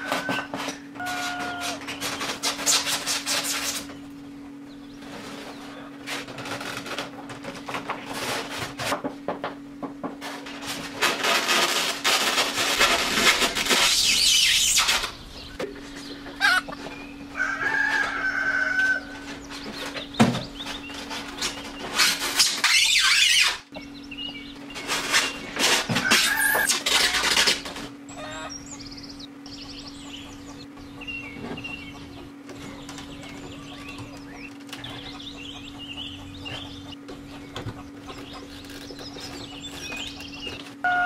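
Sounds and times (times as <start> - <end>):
foam boards squeaking: 0.0 - 4.0, 10.2 - 17.1, 18.9 - 28.6, 30.8 - 41.0
steady low hum: 0.0 - 41.0
scratchy scrapes: 1.2 - 3.9
wavering squeal: 22.0 - 23.7.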